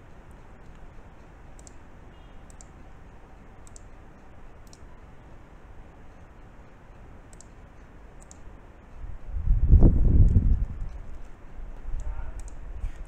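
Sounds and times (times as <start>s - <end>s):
computer mouse clicks: 0.0s - 5.0s, 6.9s - 9.3s, 10.1s - 12.6s
faint low hum: 0.0s - 13.0s.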